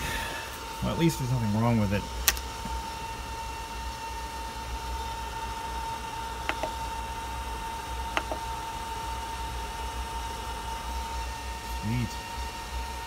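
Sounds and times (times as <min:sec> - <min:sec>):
cooling fan whining: 0:00.0 - 0:13.0
control knob double clicks: 0:06.5 - 0:06.8.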